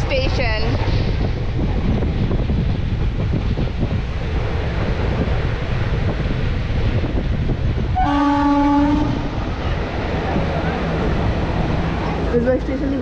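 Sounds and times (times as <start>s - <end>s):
moving train rumble: 0.0s - 13.0s
wind buffeting microphone: 0.0s - 13.0s
train horn steady note: 8.0s - 9.4s.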